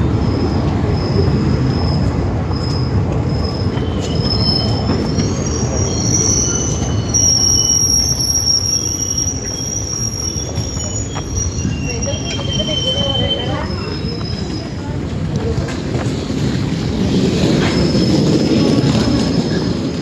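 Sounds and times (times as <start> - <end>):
train coaches rumbling: 0.0 - 20.0
train wheels squealing: 0.0 - 20.0.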